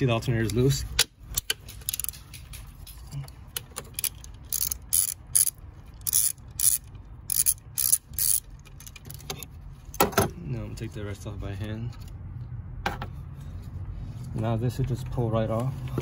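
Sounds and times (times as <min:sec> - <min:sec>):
socket ratchet clicking: 0:00.4 - 0:02.8, 0:03.5 - 0:09.4.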